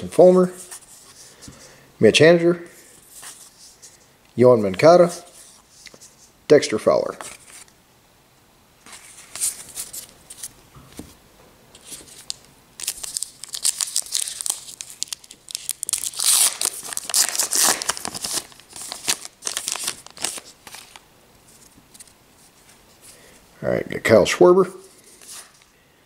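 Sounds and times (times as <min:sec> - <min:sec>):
wrapper crinkling and tearing: 0:11.8 - 0:21.0.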